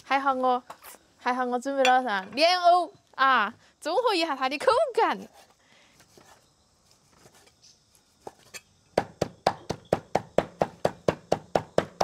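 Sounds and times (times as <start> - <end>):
cleaver chopping on wooden board: 9.0 - 12.0.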